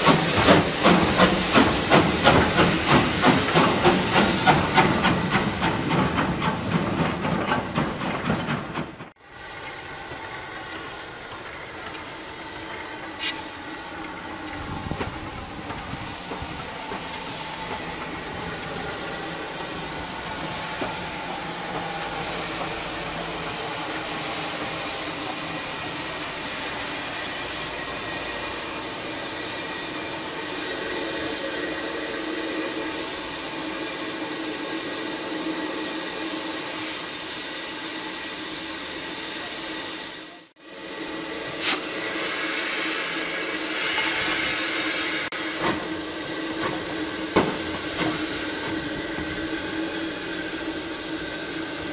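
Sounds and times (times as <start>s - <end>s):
train wheels clattering on rails: 0.0s - 12.3s, 13.1s - 31.4s, 45.5s - 51.9s
steam hissing: 0.0s - 51.9s.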